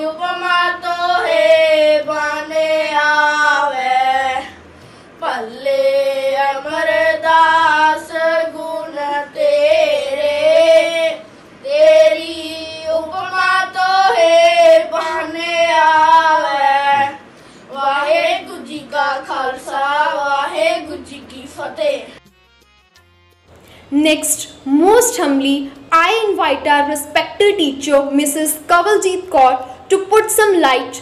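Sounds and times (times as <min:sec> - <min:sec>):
boys singing devotional song: 0:00.0 - 0:22.2.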